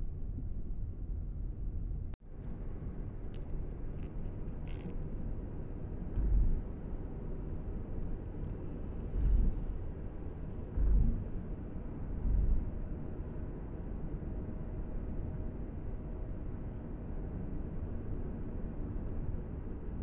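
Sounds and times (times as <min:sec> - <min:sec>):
road vehicle rumble: 0:00.0 - 0:20.0
heavy low thumps: 0:06.2 - 0:06.7, 0:09.1 - 0:09.7, 0:10.7 - 0:11.5, 0:12.1 - 0:12.8.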